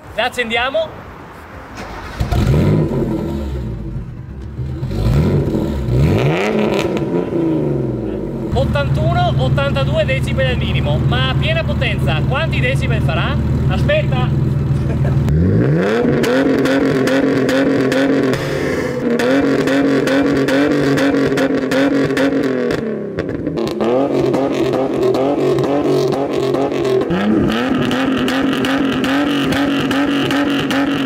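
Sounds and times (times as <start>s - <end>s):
car engine revving hard: 2.0s - 4.0s, 4.6s - 8.5s, 14.6s - 31.0s.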